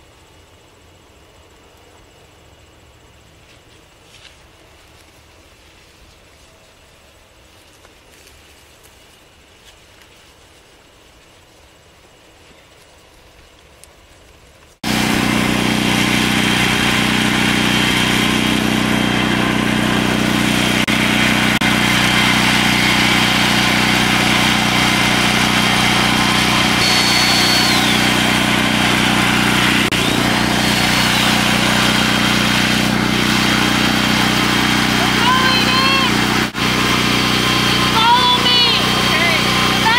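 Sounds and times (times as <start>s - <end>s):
portable generator running: 14.8s - 39.9s.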